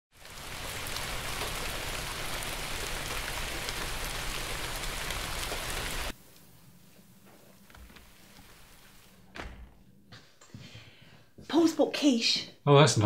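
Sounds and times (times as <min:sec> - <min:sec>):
steady rain falling: 0:00.1 - 0:09.3.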